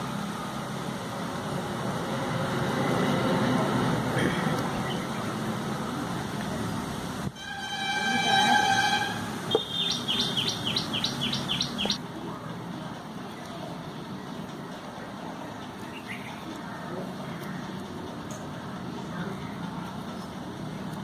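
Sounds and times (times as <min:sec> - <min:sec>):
steady background noise: 0:00.0 - 0:21.0
horn sounding: 0:07.3 - 0:10.5
bird chirping: 0:09.5 - 0:12.0.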